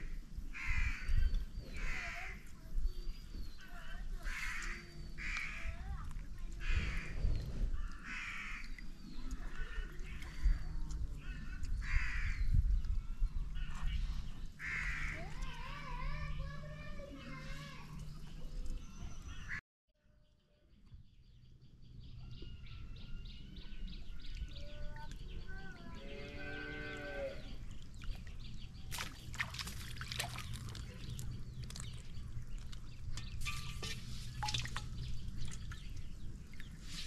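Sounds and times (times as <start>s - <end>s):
low rural background: 0.0s - 37.0s
cow mooing: 26.0s - 27.5s
water splashing: 27.7s - 37.0s.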